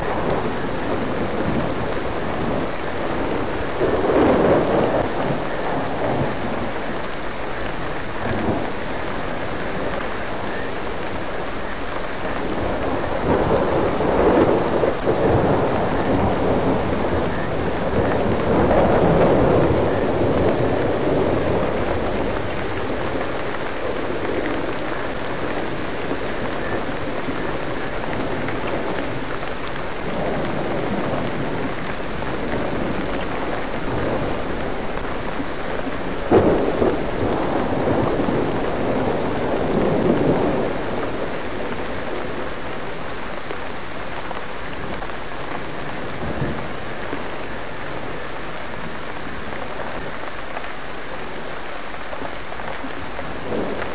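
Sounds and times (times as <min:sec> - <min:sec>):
steady rain falling: 0:00.0 - 0:53.9
thunder rumbling: 0:00.0 - 0:53.9
sharp thunder crack: 0:12.5 - 0:23.1, 0:30.0 - 0:41.8.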